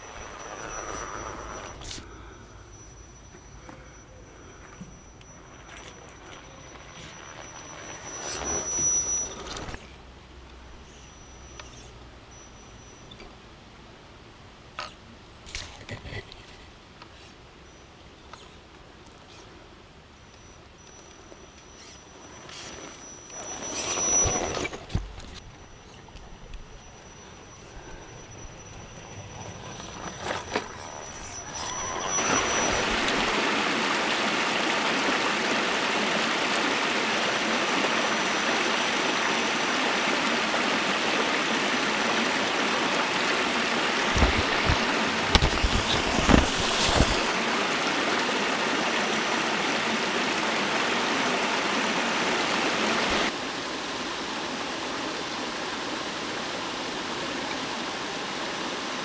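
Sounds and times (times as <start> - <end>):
stream rushing over rocks: 30.2 - 59.0.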